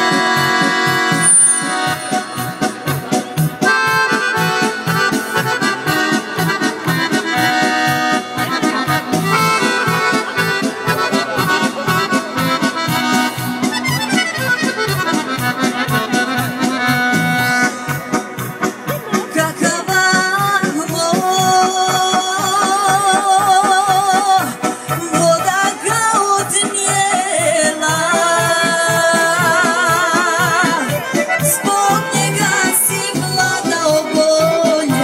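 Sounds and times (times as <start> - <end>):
folk music with accordion melody: 0.0 - 35.0.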